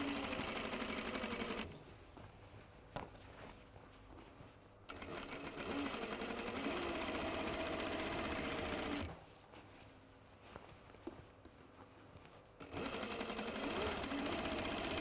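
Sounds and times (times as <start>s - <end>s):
sewing machine stitching: 0.0s - 1.8s, 4.9s - 9.2s, 12.6s - 15.0s.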